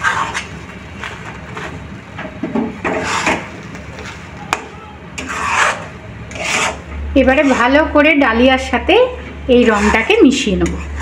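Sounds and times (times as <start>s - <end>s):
metal spatula scraping a pan: 0.0s - 0.6s, 2.9s - 3.5s, 5.2s - 8.0s, 9.5s - 11.0s.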